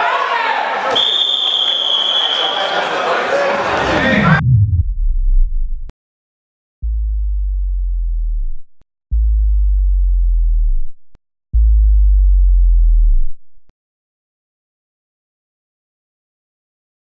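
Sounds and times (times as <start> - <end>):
deep synthesized bass tones: 3.7 - 5.9, 6.8 - 13.7.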